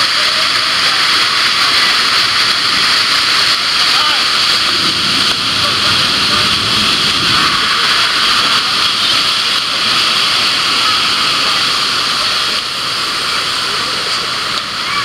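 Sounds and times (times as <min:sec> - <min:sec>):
loud rush of pouring water: 0:00.0 - 0:15.0.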